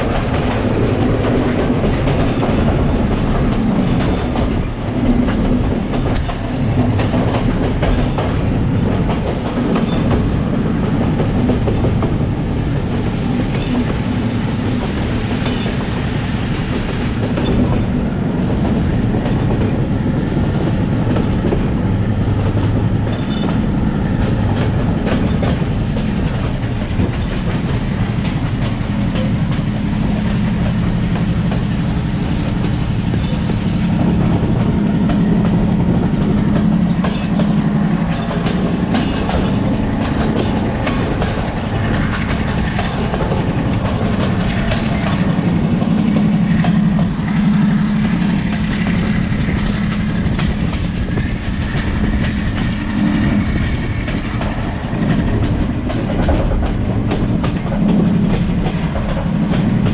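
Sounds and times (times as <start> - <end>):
train coaches rumbling and rattling: 0.0 - 59.9
train wheel clicks over rails: 0.0 - 59.9.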